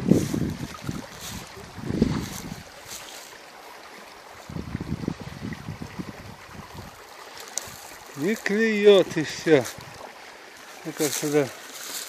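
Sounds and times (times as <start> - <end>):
wind buffeting microphone: 0.0 - 3.0, 4.3 - 7.0, 7.7 - 10.1
faint steady hiss: 0.0 - 12.0.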